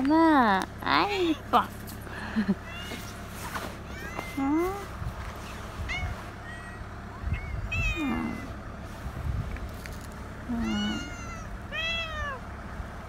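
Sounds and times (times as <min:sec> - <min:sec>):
cats meowing: 0:02.6 - 0:08.6, 0:10.5 - 0:12.4.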